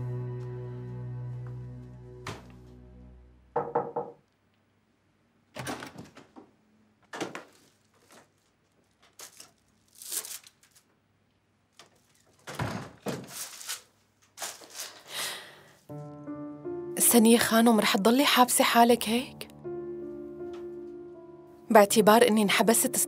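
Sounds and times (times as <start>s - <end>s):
knocks on wooden door: 3.6s - 4.2s.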